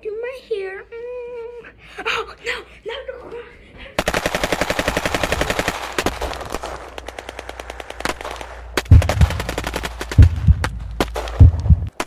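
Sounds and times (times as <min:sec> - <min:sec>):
machine-gun fire: 0:04.0 - 0:12.0
deep booming shots: 0:08.0 - 0:12.0.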